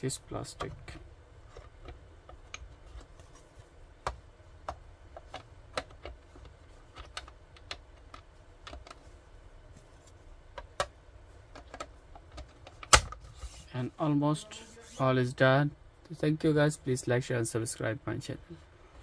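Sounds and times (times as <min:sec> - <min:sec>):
plastic clicks and knocks: 0:04.0 - 0:09.0, 0:10.5 - 0:13.2.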